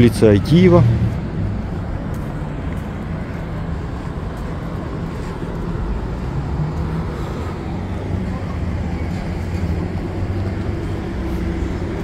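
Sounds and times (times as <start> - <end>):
street traffic rumble: 0.0 - 12.0.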